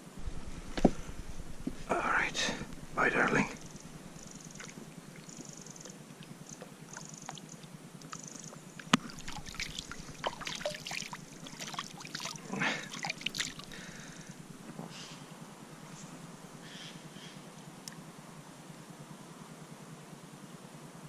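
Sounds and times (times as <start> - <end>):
water dripping: 0.2 - 14.2
hands splashing in water: 8.9 - 13.8.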